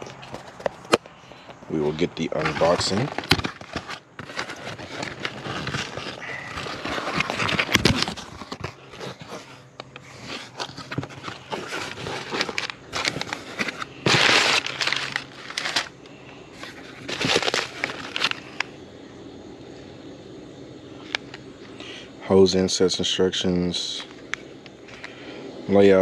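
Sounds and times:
packing paper rustling and crackling: 0.0 - 18.7.

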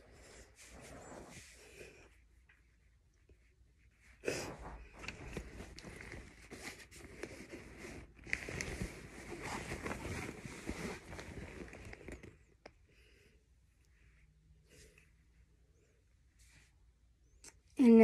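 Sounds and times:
fabric rustling and rubbing: 0.0 - 12.6.

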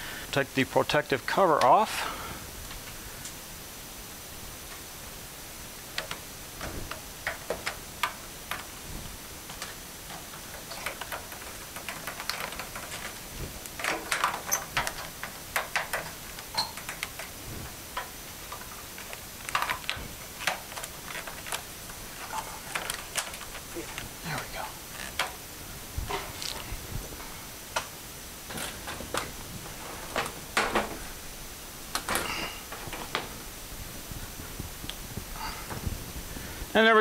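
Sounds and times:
plastic cover peeling crackles: 5.9 - 27.1.

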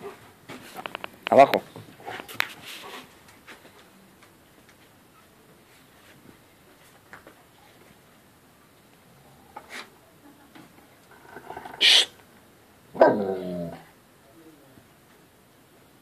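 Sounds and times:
dog barking: 13.0 - 13.4
dog howling call: 13.0 - 13.9.

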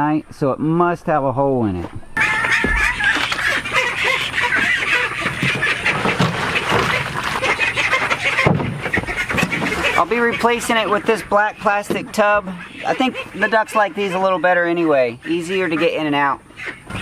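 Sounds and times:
ducks quacking: 2.2 - 17.0
knocks and rustles: 4.5 - 10.0.

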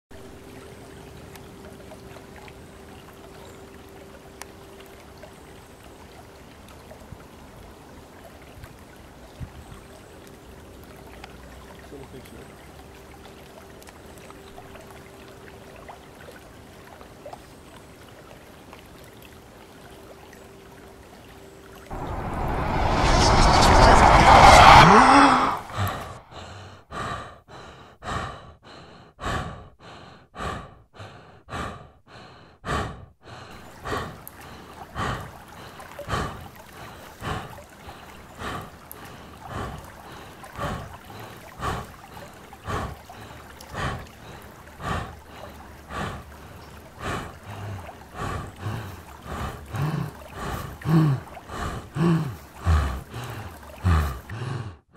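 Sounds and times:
low voiced grunting: 24.4 - 26.6
rapid panting breaths: 24.8 - 54.9.

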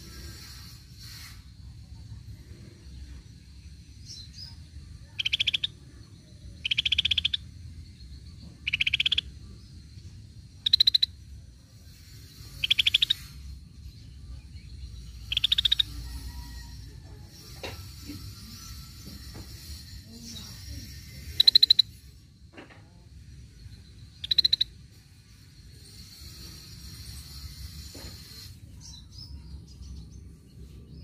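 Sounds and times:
bird rattling trills: 5.1 - 5.8, 6.6 - 7.7, 8.4 - 13.9, 15.0 - 22.3, 23.6 - 28.8.

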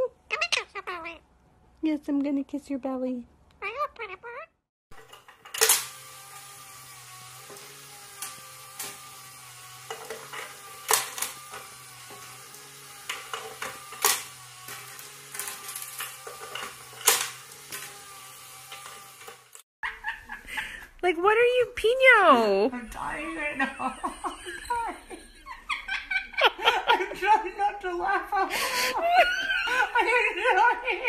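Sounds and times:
coins clinking on metal bank: 13.1 - 17.9.

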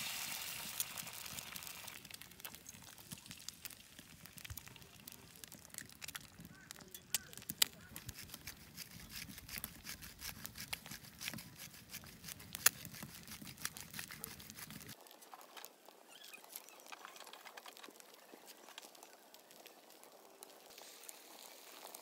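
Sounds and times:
eggs sizzling in oil: 0.0 - 9.6, 15.7 - 22.0.

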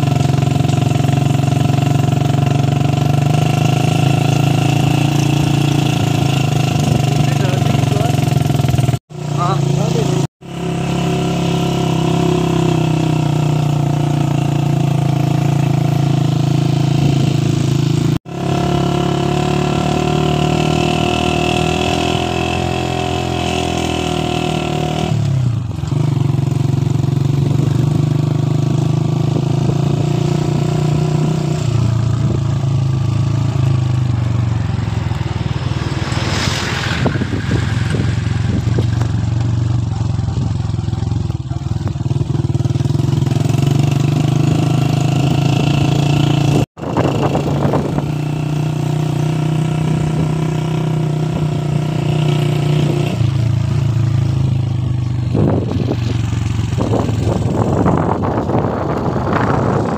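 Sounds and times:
vehicle engine running: 0.0 - 10.7, 31.7 - 48.2, 53.3 - 59.9.

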